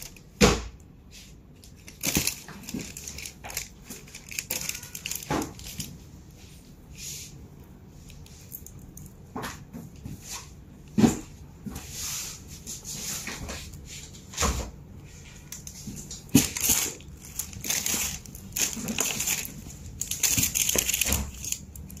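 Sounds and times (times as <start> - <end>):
tissue paper rustling: 1.1 - 7.3, 15.2 - 22.0.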